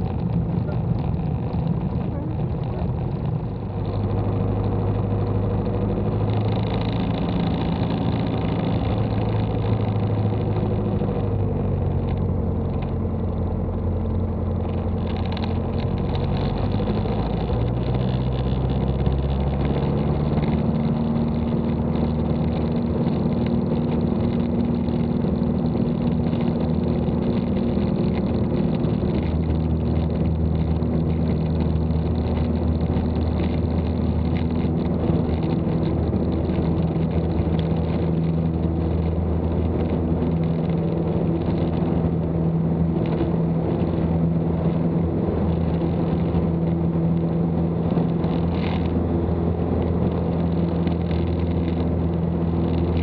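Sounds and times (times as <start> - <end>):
propeller plane engine in cockpit: 0.0 - 53.0.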